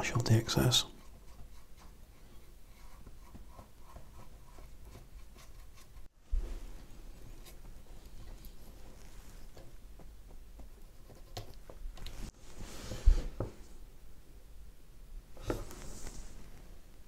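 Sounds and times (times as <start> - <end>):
paintbrush scratchy strokes on wood: 0.6 - 9.8.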